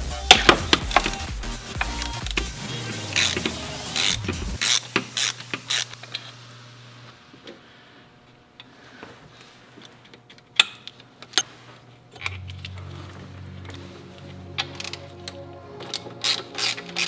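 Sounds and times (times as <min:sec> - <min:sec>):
socket ratchet clicking: 0:00.8 - 0:02.5, 0:03.2 - 0:06.0.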